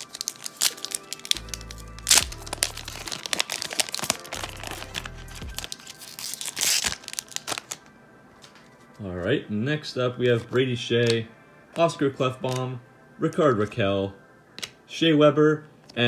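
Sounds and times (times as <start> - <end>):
wrapper crinkling and tearing: 0.0 - 8.7
background music with bass line: 1.4 - 3.2, 4.3 - 5.7.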